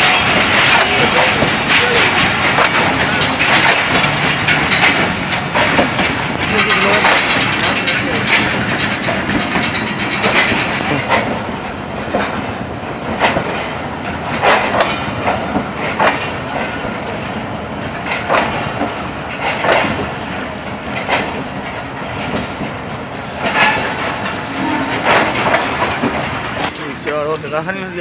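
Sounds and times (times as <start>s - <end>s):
sharp metallic clanks: 0.0s - 11.3s, 23.2s - 26.9s
train rail rumble: 0.0s - 28.0s.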